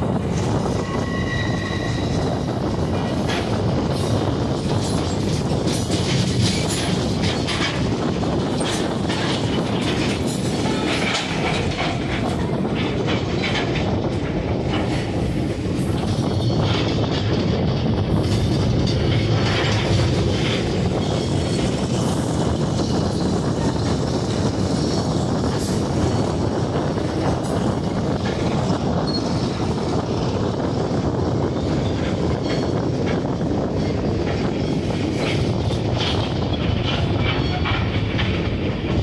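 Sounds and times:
train wheels rumbling on track: 0.0 - 39.0
clicks and clatter of rails: 4.6 - 23.0, 35.1 - 39.0.

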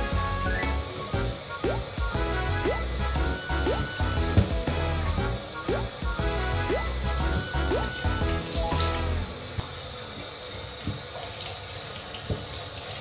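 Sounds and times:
faucet water splashing into tub: 0.0 - 9.6, 10.4 - 13.0
music: 0.0 - 9.6.

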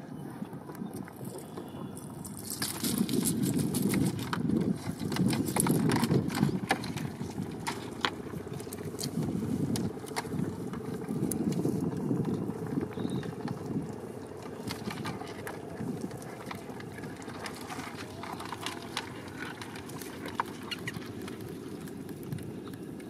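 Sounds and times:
low uneven rumble: 0.0 - 23.0
wet fishing net rattling: 2.2 - 12.0, 14.4 - 22.2.

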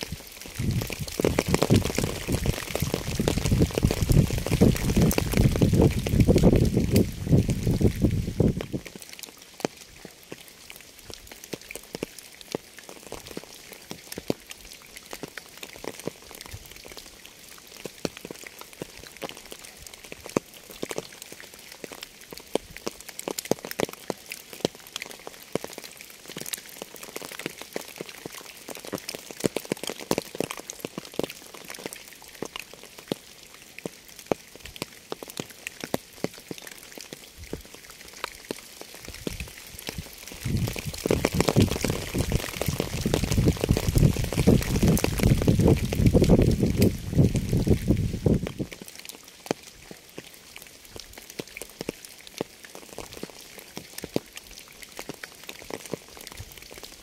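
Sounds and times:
rain hissing: 0.0 - 57.0
raindrops tapping: 0.0 - 57.0.

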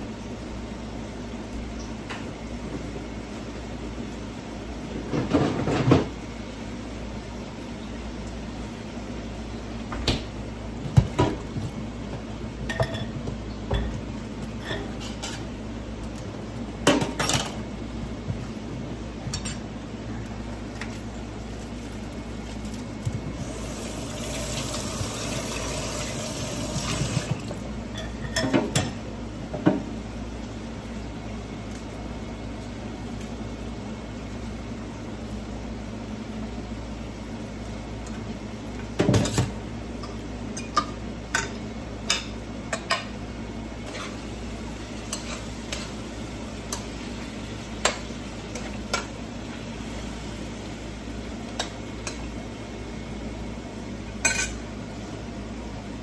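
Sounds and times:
utensils clinking on metal pots: 27.9 - 29.0, 54.2 - 54.6.

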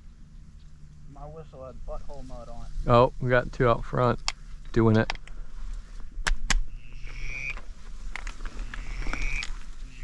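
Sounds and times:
drawn-out duck calls: 6.7 - 7.6, 8.6 - 10.0.

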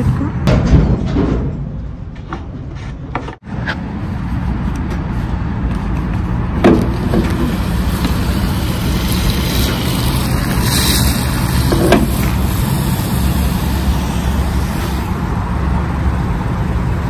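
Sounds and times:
fuel gushing from pump nozzle: 6.7 - 15.4.

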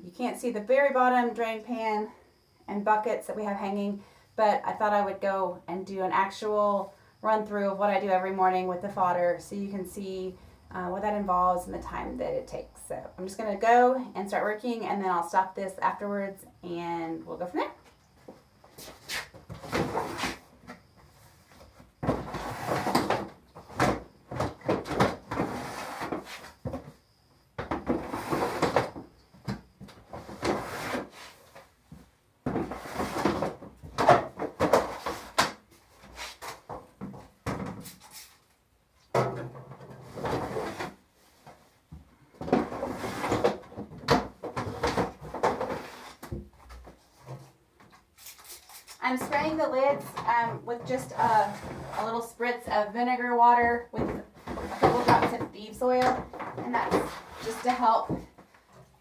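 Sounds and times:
plastic trays scraping and clunking: 18.8 - 26.9, 27.6 - 31.7, 32.5 - 38.1, 39.2 - 41.7, 42.4 - 48.0, 48.9 - 52.9, 53.6 - 59.0.

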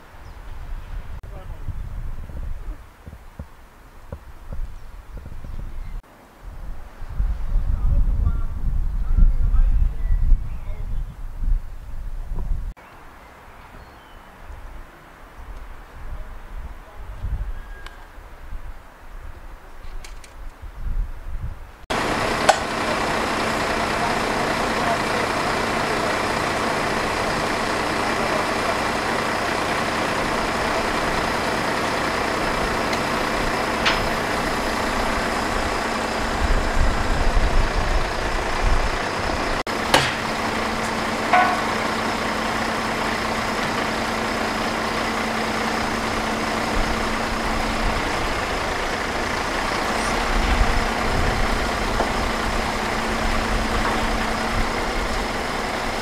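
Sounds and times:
sharp metallic knocks: 21.9 - 24.3, 39.7 - 44.3
truck engine running: 21.9 - 56.0.

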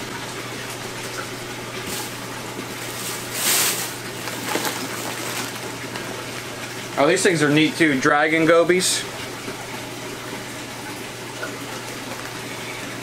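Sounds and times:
aquarium pump hum: 0.0 - 13.0
running water: 0.0 - 13.0.

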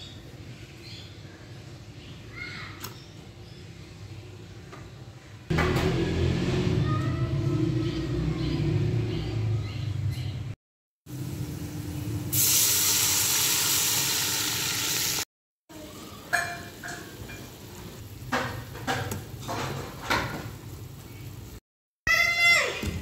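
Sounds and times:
hot oil sizzling: 11.1 - 15.3, 16.5 - 21.6.

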